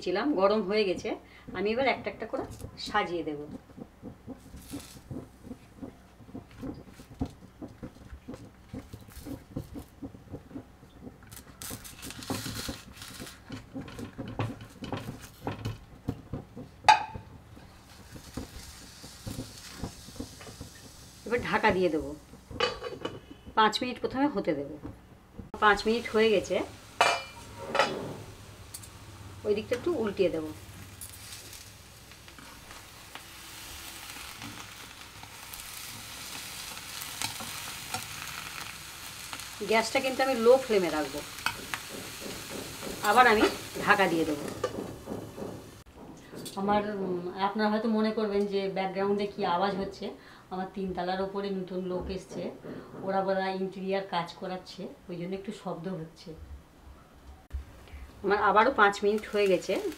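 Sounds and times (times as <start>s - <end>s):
leaf parcels rustling in a pan: 3.7s - 16.6s, 17.5s - 23.7s, 25.5s - 44.7s, 58.2s - 59.9s.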